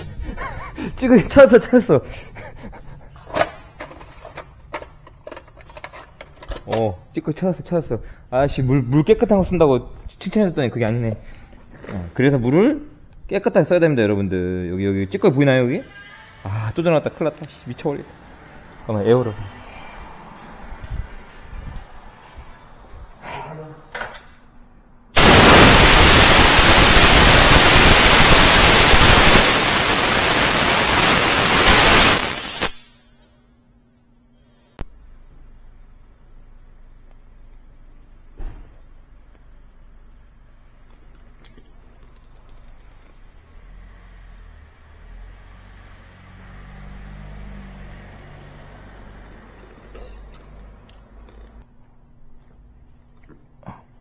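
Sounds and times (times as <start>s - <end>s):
air blow gun hissing: 25.2s - 33.0s
low machine hum: 32.9s - 43.4s
metal parts clinking: 49.5s - 51.6s.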